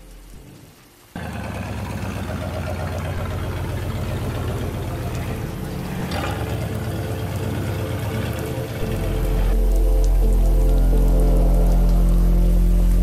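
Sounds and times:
car engine rumbling: 0:01.1 - 0:10.4.

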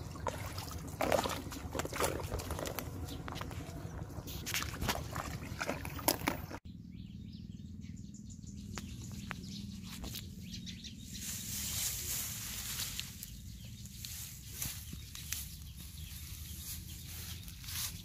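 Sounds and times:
low outdoor rumble: 0:00.0 - 0:18.0
grass rustling: 0:09.7 - 0:18.0.

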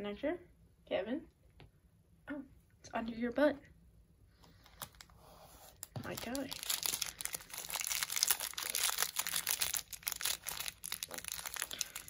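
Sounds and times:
plastic bag crinkling: 0:05.8 - 0:12.0.

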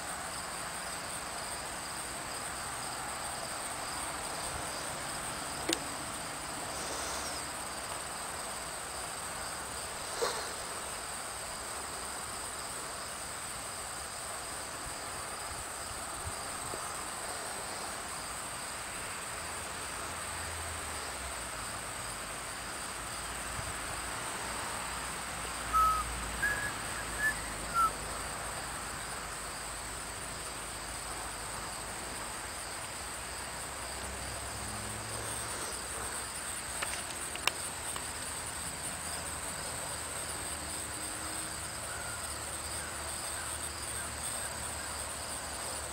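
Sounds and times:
crickets chirring: 0:00.0 - 0:45.9
faint click: 0:05.6 - 0:05.8, 0:36.8 - 0:38.3
short high chirps: 0:25.8 - 0:27.9.

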